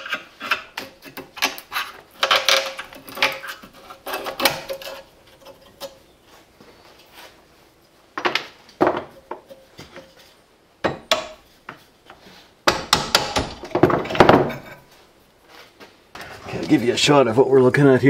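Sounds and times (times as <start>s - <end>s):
tool handling: 0.0s - 6.2s.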